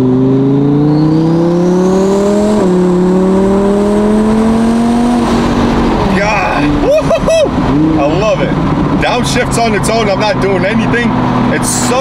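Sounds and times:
car engine accelerating hard: 0.0 - 12.0.

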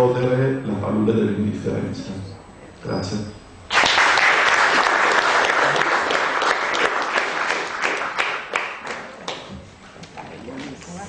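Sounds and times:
audience applauding: 3.7 - 9.5.

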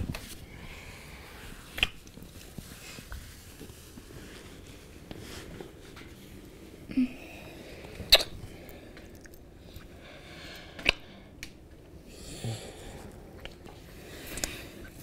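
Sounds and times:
wet lip smacks: 8.1 - 8.4.

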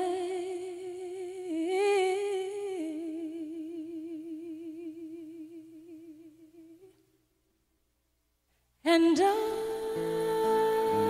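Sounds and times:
woman singing a long note: 8.9 - 11.0.

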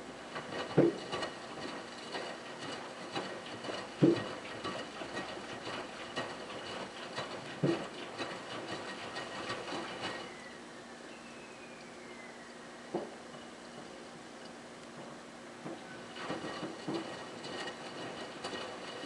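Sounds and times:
washing machine drum tumbling: 0.3 - 8.3, 15.0 - 19.0
water sloshing and splashing: 0.3 - 10.4, 15.6 - 19.0.

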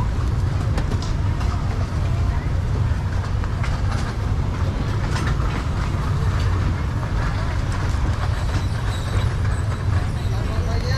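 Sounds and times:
low crowd rumble: 0.0 - 10.9
clicks and clatter: 2.9 - 10.2.

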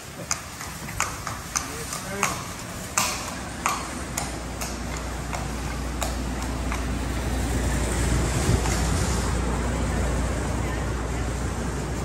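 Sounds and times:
horse hooves clopping on concrete: 0.0 - 9.7
wind rumble on microphone: 5.2 - 12.0.

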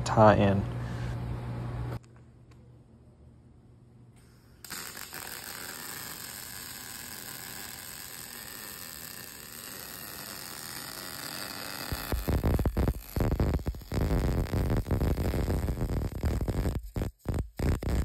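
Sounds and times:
welding arc hissing: 4.6 - 18.0.

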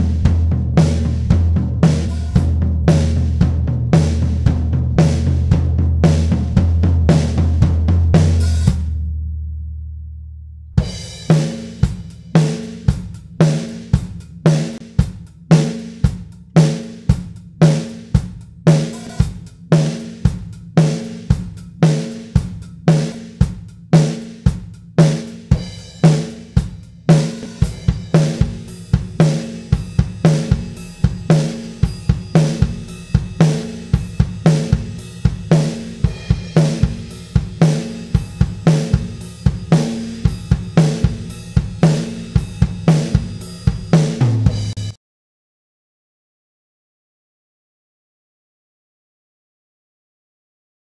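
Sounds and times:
drum kit playing a groove: 0.0 - 9.3, 10.8 - 45.0
low ringing tail: 27.5 - 44.9.

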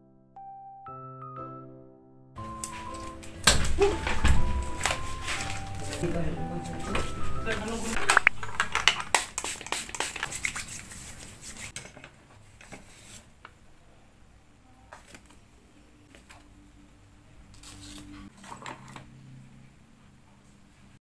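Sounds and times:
small packages rustling: 2.4 - 13.3.

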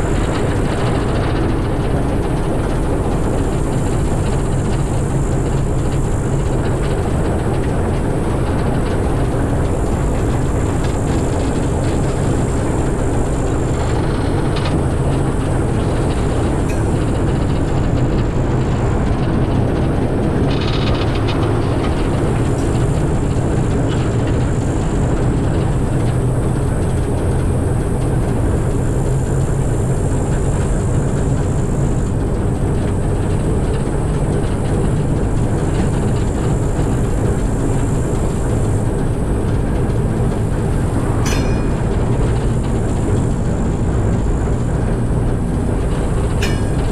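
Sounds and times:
diesel locomotive engine running: 0.0 - 46.9
faint wheel clicks on rails: 32.8 - 46.9.

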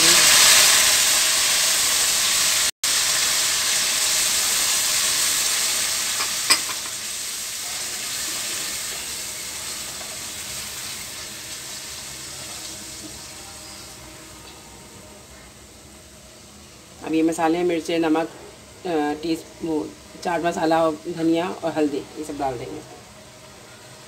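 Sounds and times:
tomatoes sizzling in hot oil: 0.0 - 24.0.

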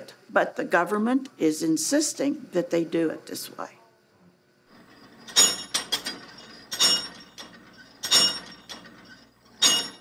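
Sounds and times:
weight stack metallic knocks: 5.0 - 10.0.

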